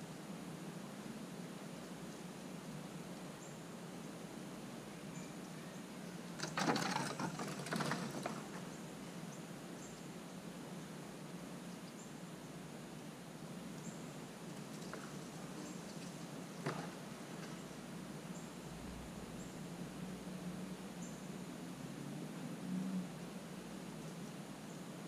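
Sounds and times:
squirrel scrambling over dry leaves: 6.4s - 8.8s, 14.5s - 17.8s
low steady hum: 7.0s - 25.0s.

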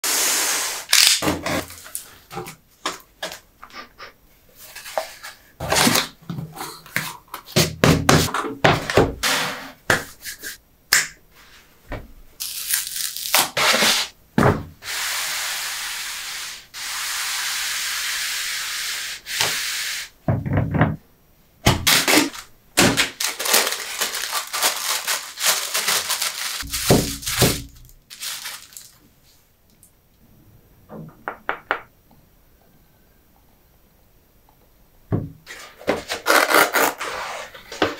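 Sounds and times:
tissue paper crinkling: 21.9s - 29.0s
paper envelope pulled open: 23.2s - 29.0s.

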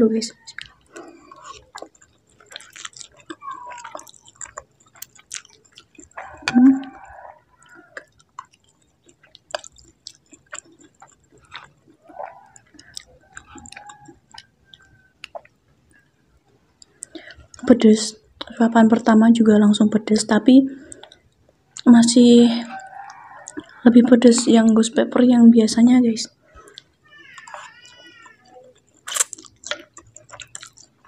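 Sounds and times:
chewing noodles: 0.2s - 19.1s, 20.8s - 21.9s, 22.6s - 24.8s, 26.3s - 31.0s
wet mouth clicks and smacks: 0.5s - 16.0s, 16.8s - 17.6s, 26.6s - 28.1s, 28.8s - 31.0s.

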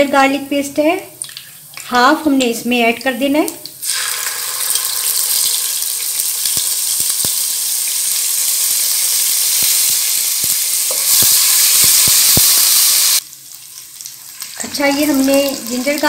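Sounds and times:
paste sizzling in hot oil: 3.8s - 16.0s.

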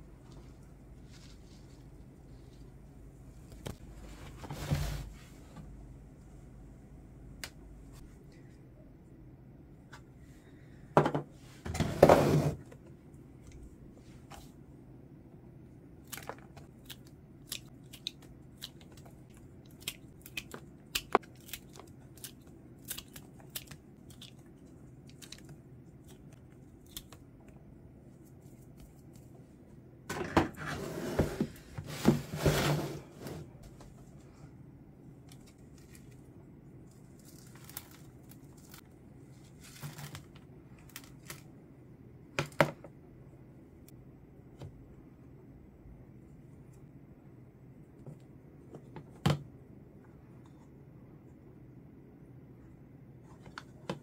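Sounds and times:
rustling and tearing: 35.3s - 41.5s.

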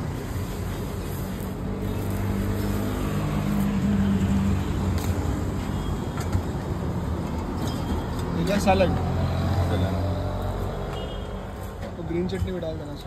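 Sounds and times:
street traffic noise: 0.0s - 13.0s.

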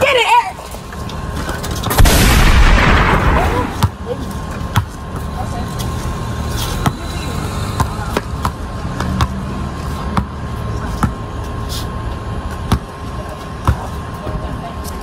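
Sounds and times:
low rumble: 1.9s - 3.8s
basketball bouncing on concrete: 3.5s - 5.4s, 6.6s - 11.3s, 12.5s - 14.0s.

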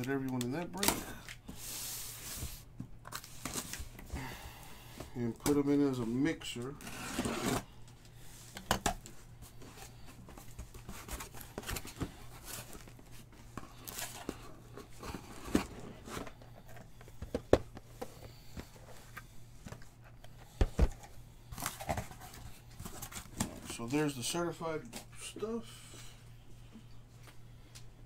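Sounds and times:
low steady hum: 0.0s - 28.0s
card boxes tapping and knocking: 13.5s - 18.8s.

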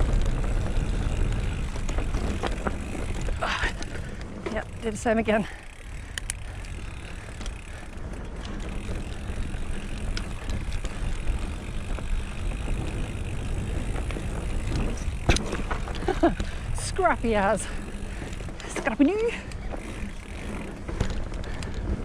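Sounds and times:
bike rattling: 0.0s - 22.0s
tyres rumbling on dirt trail: 0.0s - 22.0s
wind noise: 0.0s - 22.0s.

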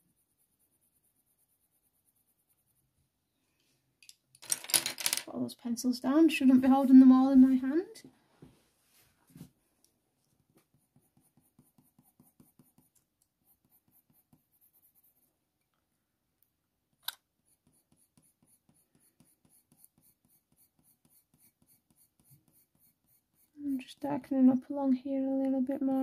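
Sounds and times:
pencil scratching on paper: 0.0s - 2.9s, 10.5s - 15.3s, 17.4s - 24.0s.

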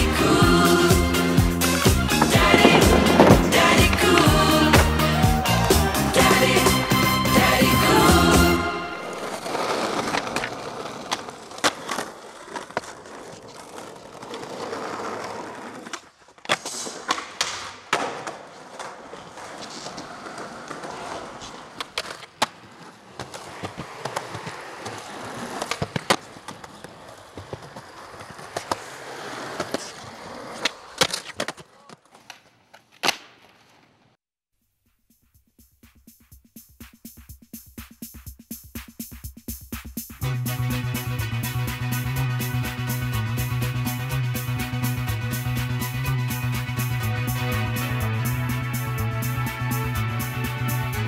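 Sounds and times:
skateboard wheels rolling on concrete: 0.0s - 34.2s, 39.0s - 51.0s
skateboard clacks: 1.6s - 7.1s, 9.3s - 34.1s.

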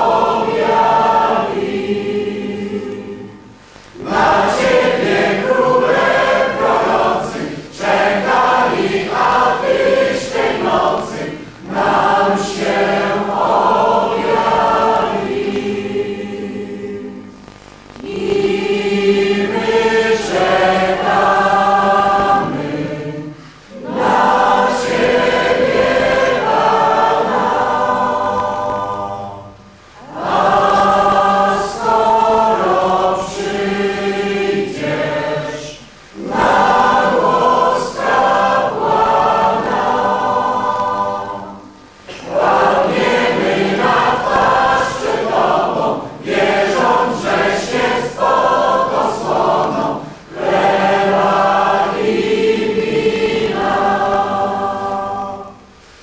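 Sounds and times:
mixed choir singing a carol: 0.0s - 56.0s.

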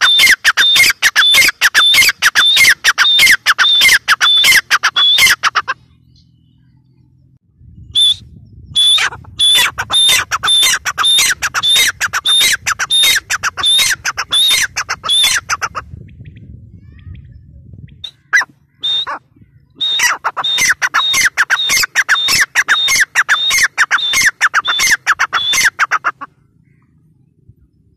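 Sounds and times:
francolin calling harsh notes: 18.1s - 19.2s, 19.8s - 26.3s.

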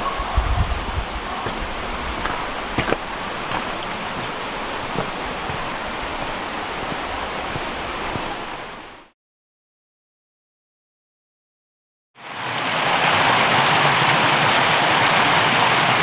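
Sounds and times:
stream rushing: 0.0s - 9.1s, 12.2s - 16.0s
footsteps crunching on stones: 1.0s - 9.0s.

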